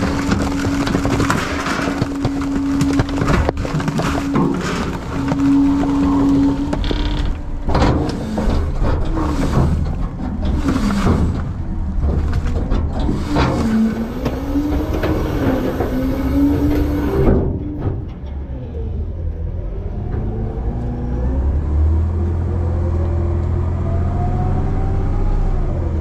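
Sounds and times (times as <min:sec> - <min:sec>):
hydraulic whine: 0:00.0 - 0:18.1
trash cracking and creaking: 0:00.0 - 0:23.8
low engine drone: 0:00.0 - 0:26.0.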